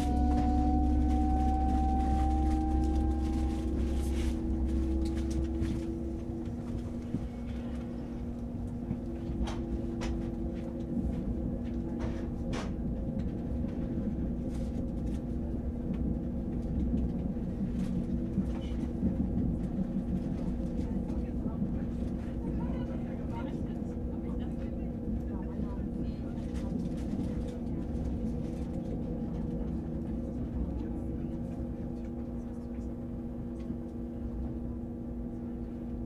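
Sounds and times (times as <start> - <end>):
rising whine: 0.0 - 11.6
train low rumble: 0.0 - 36.0.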